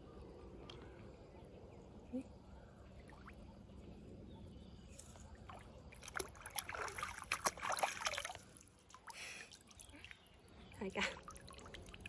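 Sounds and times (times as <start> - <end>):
hands splashing in shallow water: 5.5 - 10.2.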